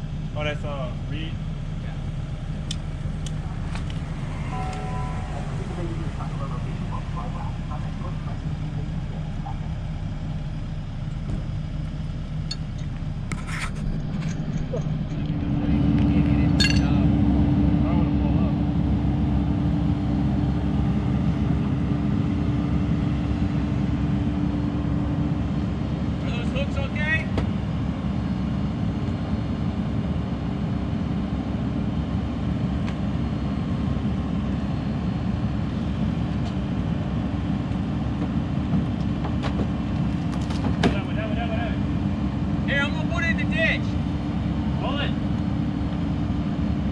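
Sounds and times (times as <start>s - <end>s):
diesel engine idling: 0.0s - 46.9s.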